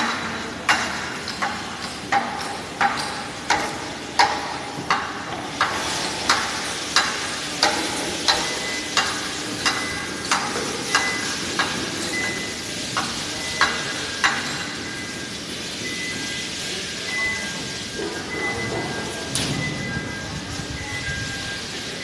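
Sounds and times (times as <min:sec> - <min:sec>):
floor grinding machines hissing: 0:00.0 - 0:22.0.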